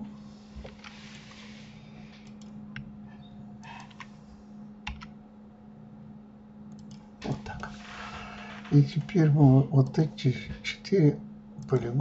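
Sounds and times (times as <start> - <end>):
low steady hum: 0.0 - 12.0
keyboard and mouse clicks: 3.6 - 4.1, 4.8 - 5.1, 6.7 - 7.4.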